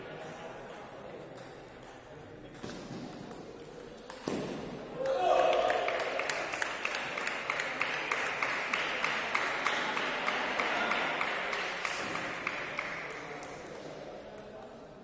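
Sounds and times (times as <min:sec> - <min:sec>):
table tennis ball strikes: 0:01.4 - 0:04.9
spectators clapping: 0:05.0 - 0:13.7.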